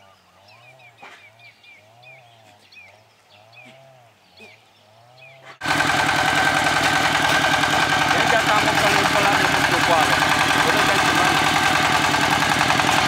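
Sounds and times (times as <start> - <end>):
diesel engine running: 5.6 - 13.0
rotary tiller churning soil: 5.6 - 13.0.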